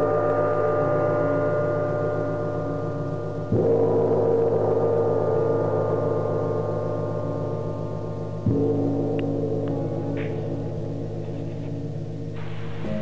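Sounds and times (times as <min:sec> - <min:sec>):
background music: 0:12.4 - 0:13.0.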